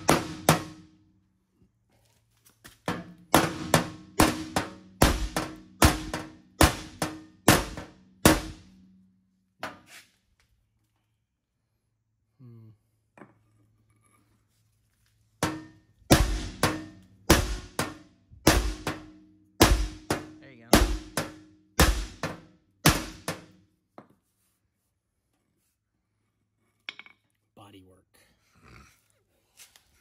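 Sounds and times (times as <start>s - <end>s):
hammer striking steel: 0.0s - 0.8s, 2.9s - 8.8s, 15.4s - 23.6s.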